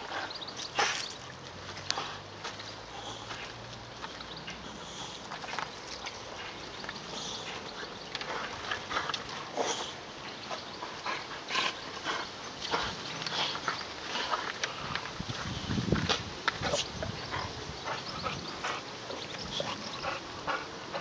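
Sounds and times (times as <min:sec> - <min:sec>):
dog noises: 0:16.6 - 0:21.0.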